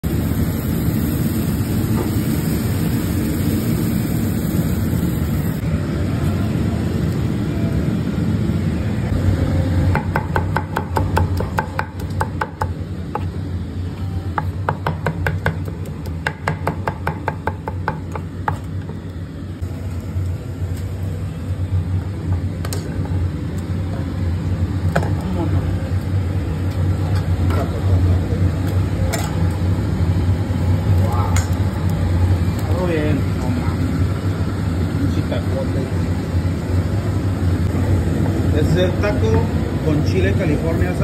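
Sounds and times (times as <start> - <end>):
knife chopping on metal griddle: 9.9 - 13.3, 14.4 - 18.9.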